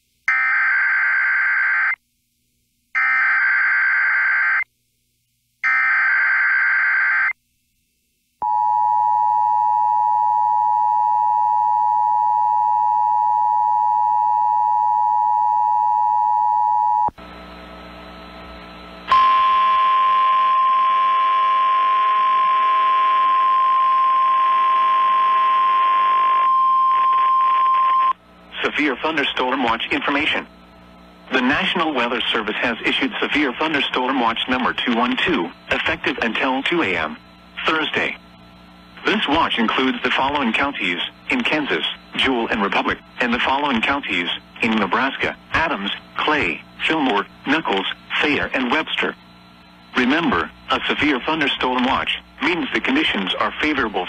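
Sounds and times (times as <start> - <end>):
radio static: 28.5 - 54.0.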